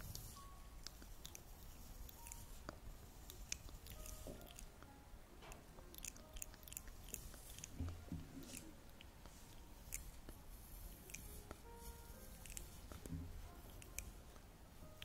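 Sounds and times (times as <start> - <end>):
wet clicks and crackles: 0.8 - 10.4, 12.4 - 14.5.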